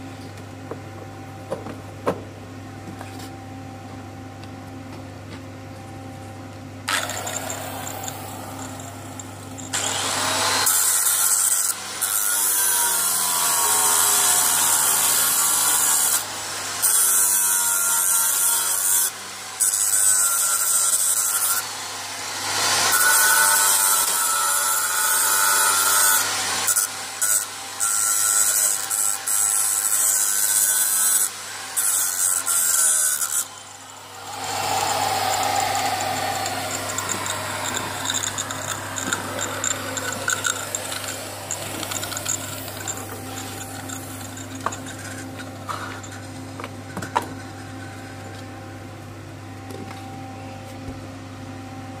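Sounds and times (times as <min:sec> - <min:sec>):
falling whine: 0:33.8 - 0:45.0.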